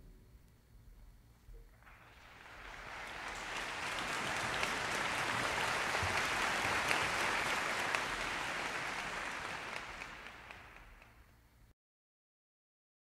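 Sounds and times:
audience applause: 0:01.8 - 0:11.3.

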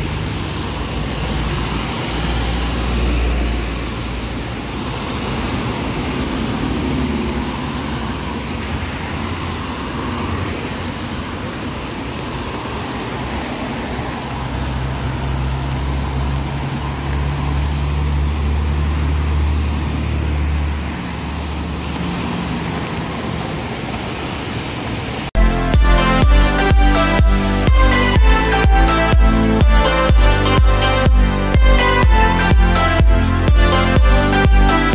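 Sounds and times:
traffic on wet road: 0:00.0 - 0:25.4.

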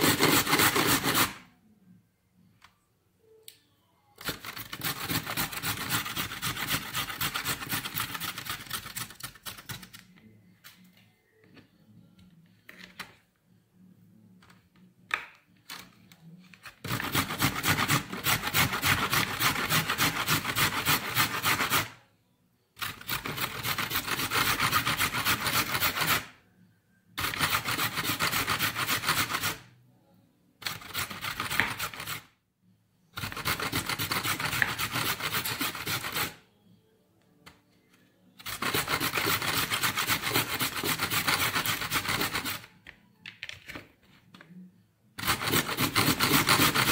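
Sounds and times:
carrot rasping on metal grater: 0:00.0 - 0:01.4, 0:04.2 - 0:08.9, 0:16.9 - 0:22.0, 0:22.8 - 0:26.3, 0:27.2 - 0:29.6, 0:33.2 - 0:36.4, 0:38.4 - 0:42.6, 0:45.2 - 0:46.9.

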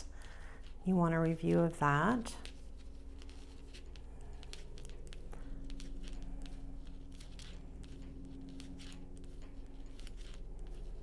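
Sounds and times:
low steady hum: 0:00.0 - 0:11.0
yarn rustling: 0:00.0 - 0:11.0
knitting needles clicking: 0:02.4 - 0:11.0.

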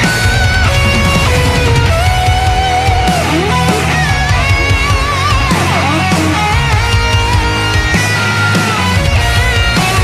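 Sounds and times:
loud rock music with electric guitar: 0:00.0 - 0:10.0.

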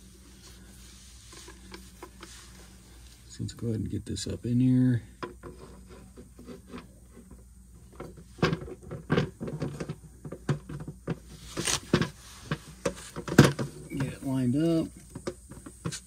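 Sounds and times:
metal knocks and scrapes: 0:05.2 - 0:14.5.

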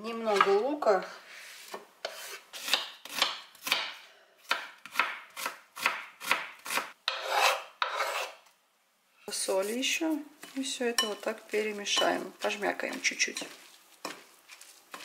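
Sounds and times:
knife scraping cutting board: 0:01.3 - 0:03.3, 0:05.4 - 0:08.4, 0:12.9 - 0:15.0
knife chopping onion on board: 0:02.0 - 0:08.3.

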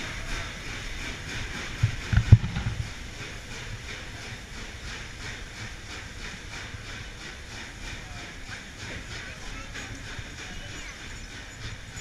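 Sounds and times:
train carriages rolling past: 0:00.0 - 0:12.0.

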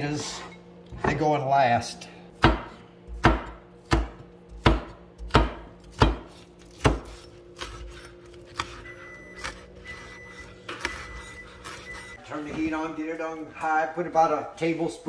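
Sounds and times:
cleaver chopping on wooden board: 0:02.4 - 0:08.8.

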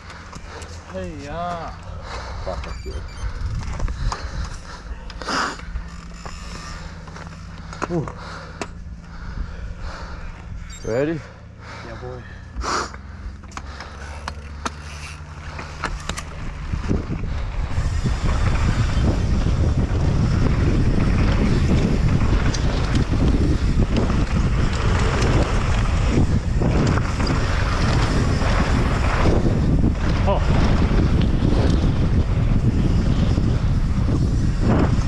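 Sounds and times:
tyres rumbling on dry dirt: 0:03.3 - 0:35.0
wind buffeting microphone: 0:15.4 - 0:35.0.

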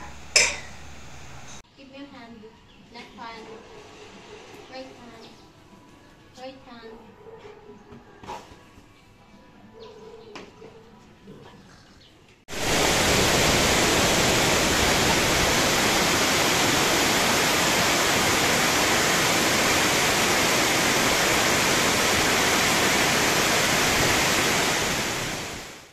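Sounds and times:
water rushing over a dam: 0:12.5 - 0:25.9.

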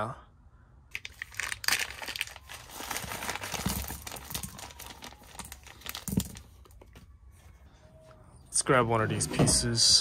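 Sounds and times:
bolts and nuts spilling onto carpet: 0:00.9 - 0:06.7
plastic bag crinkling: 0:00.9 - 0:06.8.

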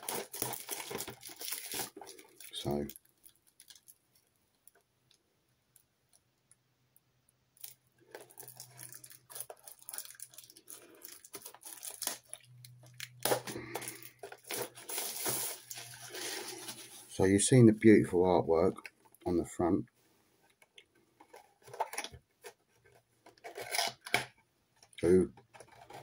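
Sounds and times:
packaging rustling and tearing: 0:00.0 - 0:04.2, 0:07.6 - 0:17.2, 0:21.2 - 0:24.3.

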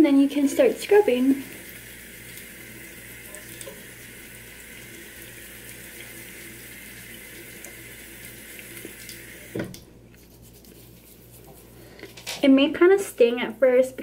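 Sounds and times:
water running from sink tap: 0:00.0 - 0:09.9.

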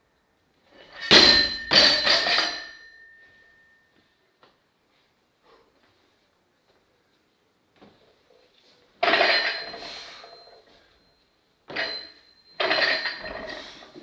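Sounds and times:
barbell plates clanking: 0:00.8 - 0:03.1, 0:09.0 - 0:10.7, 0:11.7 - 0:14.0.

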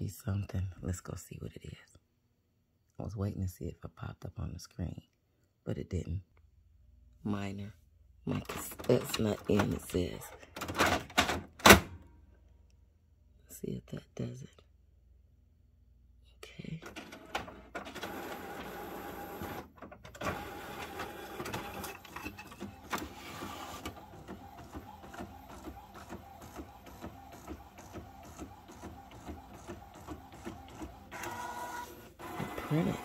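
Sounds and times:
inkjet printer whirring and clattering: 0:08.5 - 0:11.8, 0:16.9 - 0:33.0
printer fast regular ticking: 0:20.2 - 0:33.0.

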